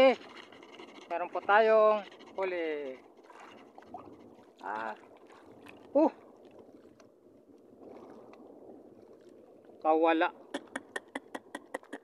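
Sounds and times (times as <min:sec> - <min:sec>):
wind on microphone: 0:00.0 - 0:07.0
water lapping around boat: 0:00.0 - 0:12.0.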